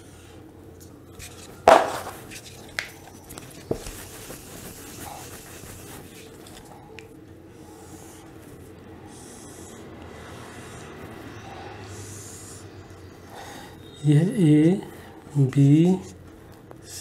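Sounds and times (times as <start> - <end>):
sharp knock: 1.7 - 2.2
duster rubbing on whiteboard: 1.7 - 6.7, 7.6 - 12.8.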